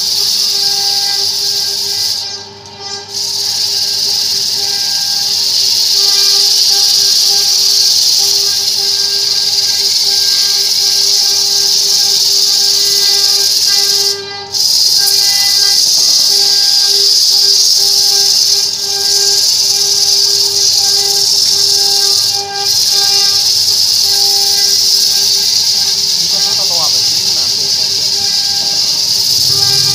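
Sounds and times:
abrasive disc grinding hiss: 0.0s - 29.9s.

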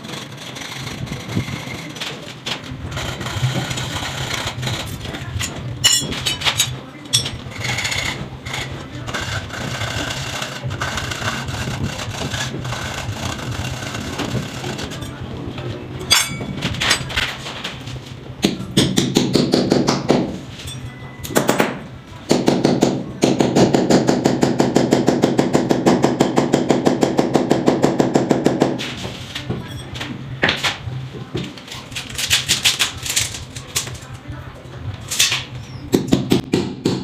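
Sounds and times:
hammer striking chisel into plaster: 21.3s - 28.8s, 36.0s - 37.0s.

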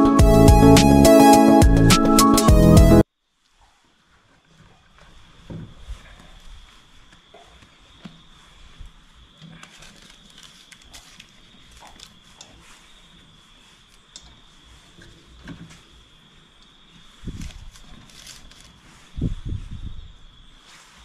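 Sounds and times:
faint high tone and hiss: 3.2s - 21.0s
paper rustling: 4.1s - 16.0s, 17.0s - 19.4s.

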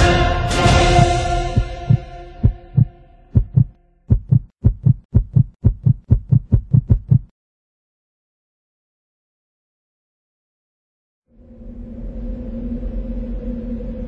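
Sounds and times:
heartbeat thumps: 0.8s - 7.3s.

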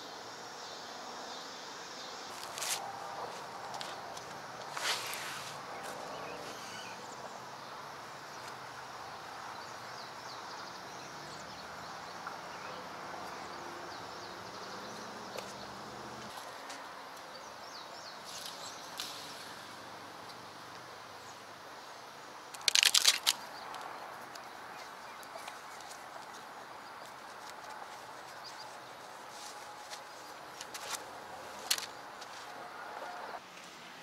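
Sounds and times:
scuffing footsteps: 2.3s - 6.6s, 29.2s - 32.6s
faint bird chirps: 5.3s - 8.5s.

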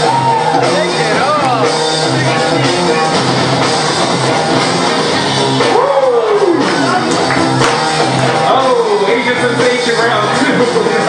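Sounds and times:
loud music with steady beat: 0.0s - 11.0s.

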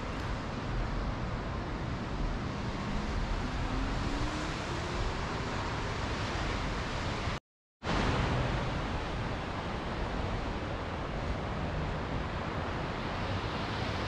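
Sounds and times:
ocean surf: 5.5s - 14.0s.

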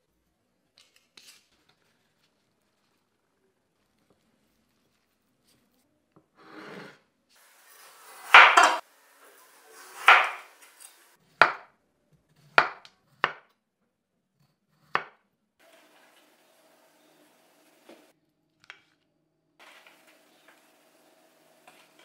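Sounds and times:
knife cutting potato: 9.9s - 13.6s, 14.4s - 15.2s
knife knocking on wooden board: 10.1s - 10.4s.

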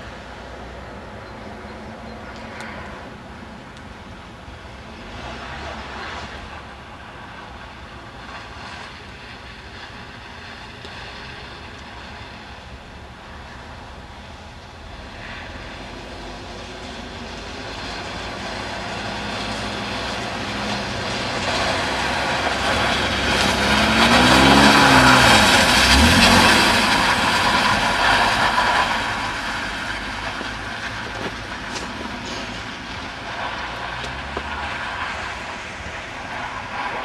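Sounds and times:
tyres hissing through slush: 14.9s - 37.0s
car engine revving: 15.0s - 37.0s.

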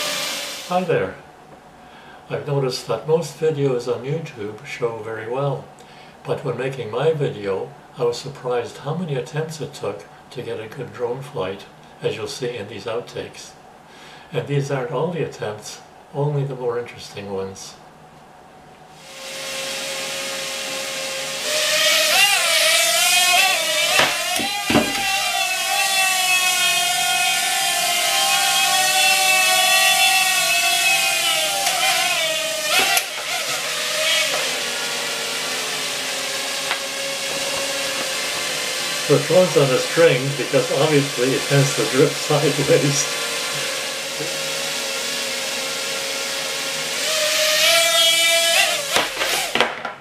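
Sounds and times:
drone propellers whining: 0.0s - 0.7s, 19.0s - 45.7s
drone knocking against table: 24.0s - 25.1s.

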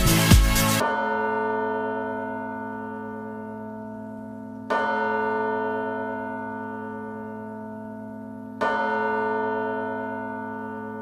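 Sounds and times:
dance music with pounding beat: 0.0s - 0.8s.

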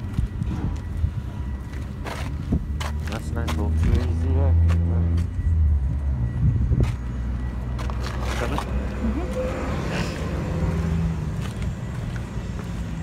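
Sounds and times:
wind buffeting microphone: 5.8s - 7.1s.

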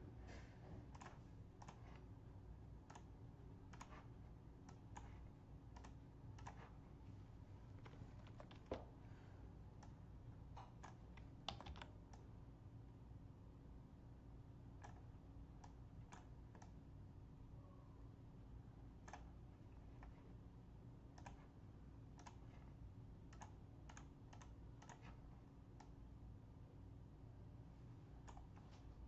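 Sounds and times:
low steady hum: 0.0s - 29.0s
computer mouse and keys clicking: 0.7s - 2.2s, 2.8s - 6.8s, 7.7s - 9.0s, 9.7s - 12.4s, 14.7s - 16.8s, 19.0s - 20.4s, 21.1s - 26.0s, 28.2s - 29.0s.

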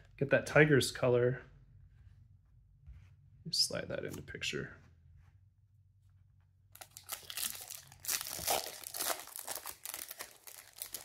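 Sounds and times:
foil wrapper crinkling: 6.8s - 11.0s.

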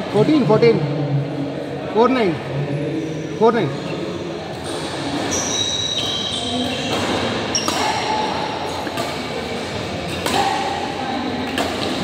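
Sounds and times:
steady background noise: 0.0s - 12.0s
shoe squeaks on court: 3.2s - 9.0s
racket hitting shuttlecock: 5.9s - 12.0s.

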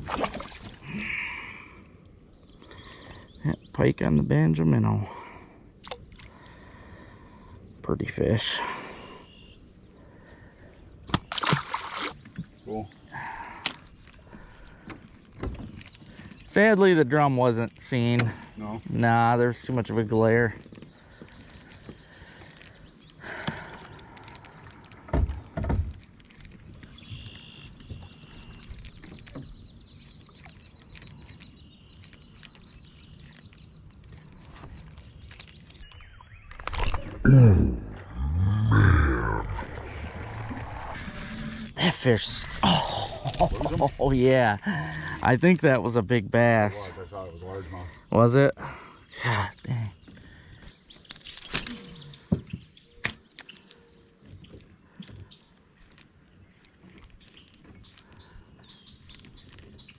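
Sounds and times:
faint bird calls: 8.7s - 10.9s, 46.7s - 59.9s.

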